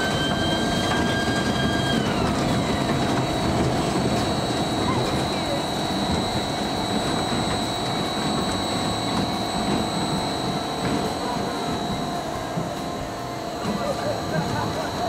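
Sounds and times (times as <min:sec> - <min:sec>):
roller coaster wheels rumbling: 0:00.0 - 0:15.0.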